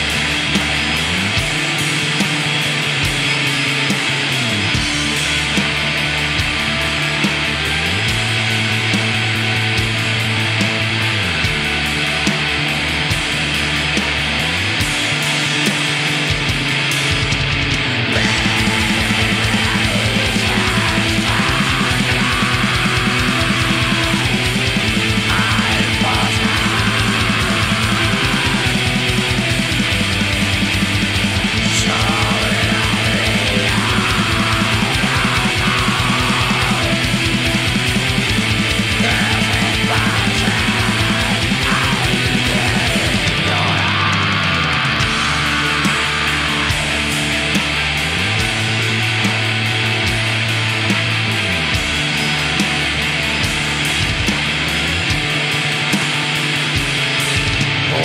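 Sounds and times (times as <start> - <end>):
distorted guitars: 0.0 - 58.0
rapid dense drumming: 0.0 - 58.0.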